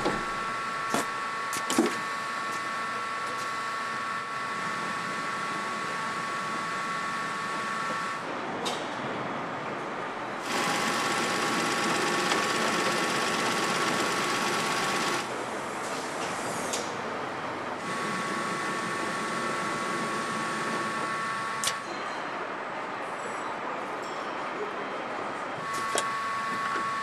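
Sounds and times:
engine whirring with a whine: 0:00.0 - 0:22.0, 0:25.6 - 0:27.0.

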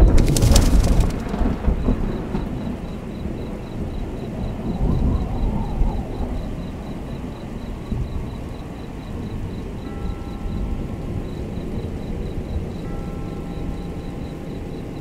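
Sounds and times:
surf breaking on rocks: 0:00.0 - 0:01.8
low rumble of wind: 0:00.0 - 0:15.0.

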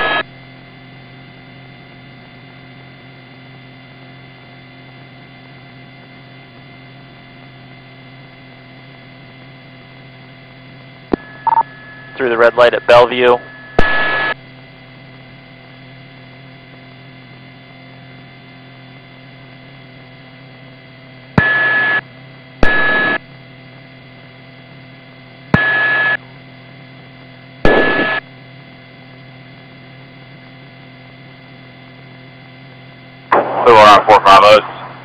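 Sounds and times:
radio key-up click and tone: 0:00.0 - 0:00.2, 0:11.1 - 0:14.4, 0:21.4 - 0:22.0, 0:22.6 - 0:23.2, 0:25.6 - 0:26.2, 0:27.7 - 0:28.2
radio hum and hiss: 0:00.0 - 0:35.0.

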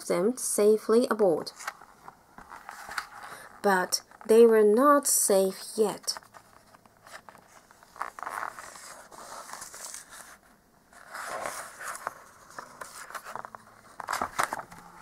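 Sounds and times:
paper pages rustling: 0:01.5 - 0:03.5, 0:06.0 - 0:15.0.

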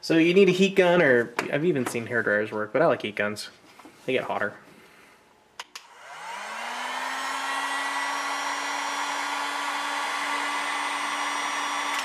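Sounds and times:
heat gun fan blowing: 0:05.8 - 0:12.0.

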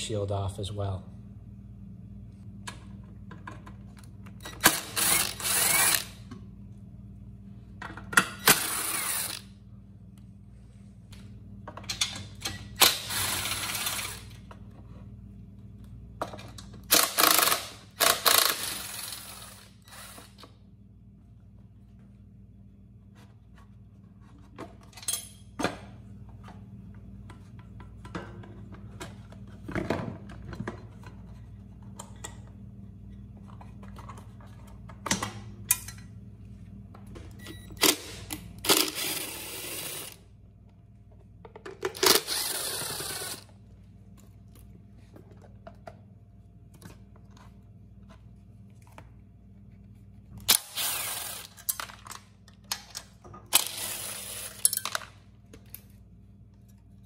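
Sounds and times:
cordless driver running: 0:04.6 - 0:06.2, 0:42.0 - 0:43.5, 0:50.5 - 0:51.6.

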